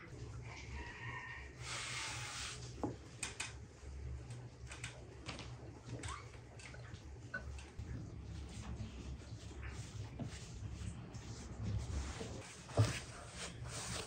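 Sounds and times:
low steady hum: 0.0 - 14.0
dough rustling on a board: 8.0 - 14.0.

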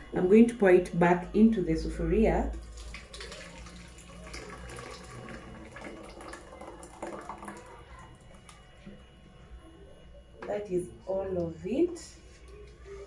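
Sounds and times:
thick soup pouring into pot: 2.7 - 7.9.

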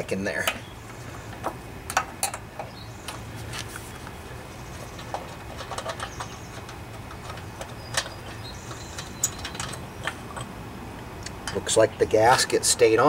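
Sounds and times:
low steady hum: 0.0 - 13.0
metal tools clicking and tapping: 1.4 - 3.2, 4.9 - 10.5, 11.2 - 11.8.

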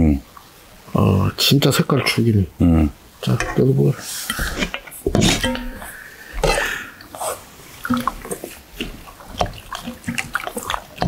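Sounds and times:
ladle clinking on metal: 5.2 - 5.9
soup sloshing and splashing: 5.3 - 11.0.

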